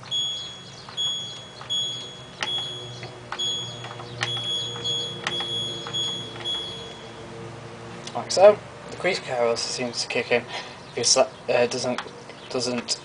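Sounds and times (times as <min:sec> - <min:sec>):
washing machine short high beeps: 0:00.0 - 0:07.1
button clicking: 0:00.1 - 0:07.0.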